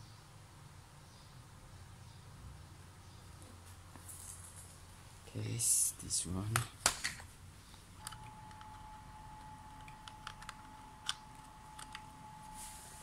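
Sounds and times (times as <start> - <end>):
faint steady high tone: 8.0 - 13.0.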